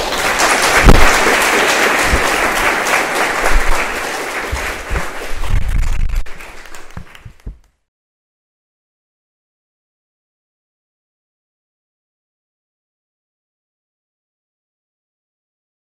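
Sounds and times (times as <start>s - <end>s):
audience applauding: 0.0s - 7.6s
low thumps: 0.8s - 1.1s.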